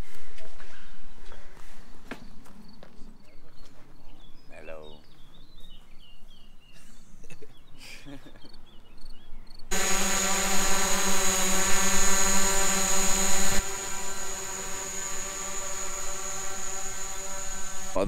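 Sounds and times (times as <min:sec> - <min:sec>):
drone motors and propellers whine: 0:09.7 - 0:18.0.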